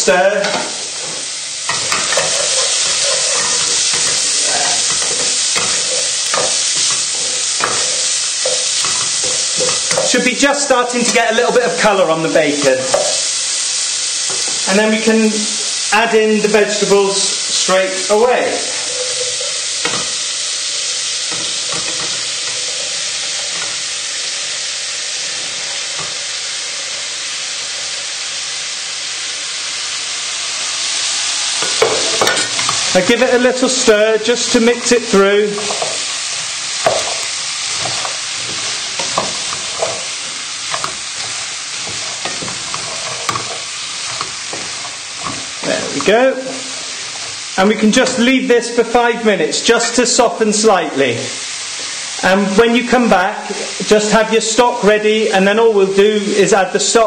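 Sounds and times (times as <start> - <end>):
bacon sizzling in a frying pan: 0.0 - 57.0
utensil scraping a pan: 0.4 - 11.2, 31.6 - 48.2.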